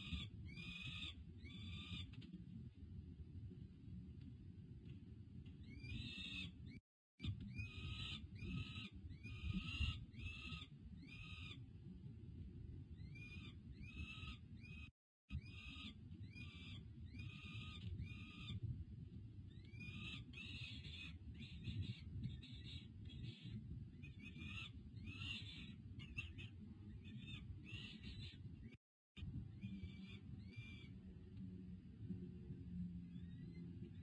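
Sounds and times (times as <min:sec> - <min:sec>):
falcon chick wailing calls: 0:00.0 - 0:02.2, 0:07.2 - 0:11.6
low rumble of wind: 0:00.0 - 0:34.0.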